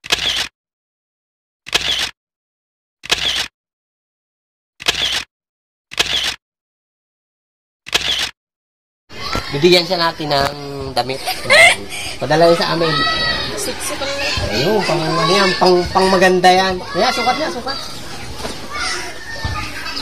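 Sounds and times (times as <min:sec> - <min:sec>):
camera shutter clicking: 0:00.0 - 0:00.5, 0:03.0 - 0:03.5, 0:04.8 - 0:05.3, 0:05.9 - 0:06.4.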